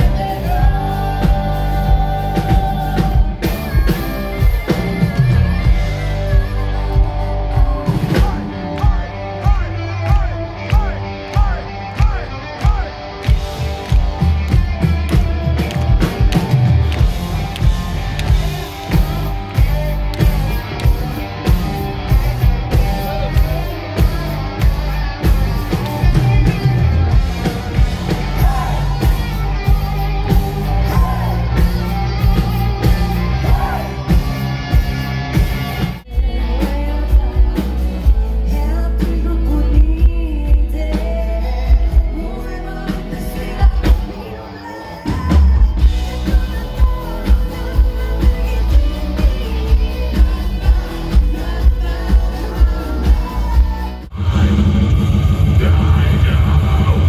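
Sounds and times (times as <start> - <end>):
woman singing: 0.0 - 9.0, 36.1 - 54.1
live rock band playing: 0.0 - 57.0.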